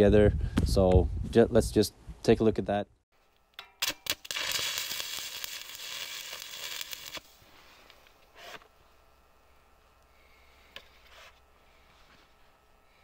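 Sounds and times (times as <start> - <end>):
arc welding crackling: 3.8 - 8.6.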